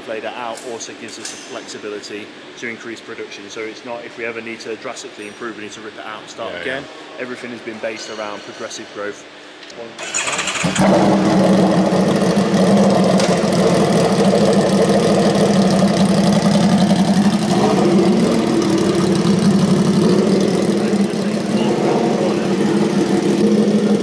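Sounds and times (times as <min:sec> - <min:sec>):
motorcycle engine idling: 0:10.2 - 0:24.0.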